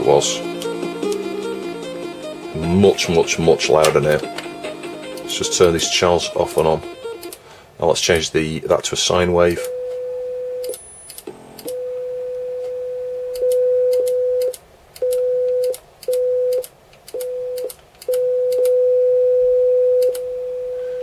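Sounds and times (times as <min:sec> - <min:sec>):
faint high square-wave tone: 0:09.4 - 0:16.6, 0:17.2 - 0:21.0
steady sine test tone: 0:09.7 - 0:21.0
sharp clicks: 0:20.0 - 0:20.3.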